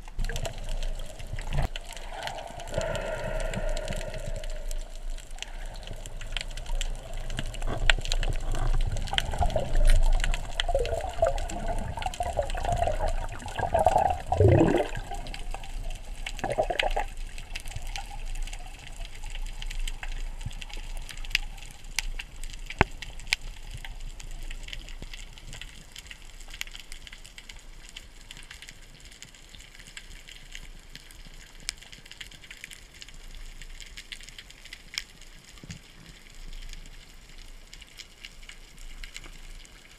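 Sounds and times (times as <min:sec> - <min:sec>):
underwater hiss: 0:00.0 - 0:18.9
underwater bubbles gurgling: 0:00.0 - 0:39.9.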